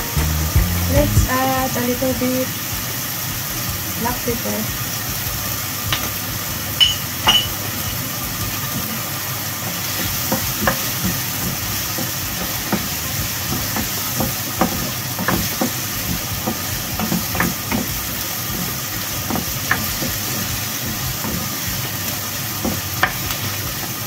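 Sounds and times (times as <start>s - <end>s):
vegetables sizzling in frying pan: 0.0s - 24.0s
spatula knocking against pan: 10.2s - 20.4s.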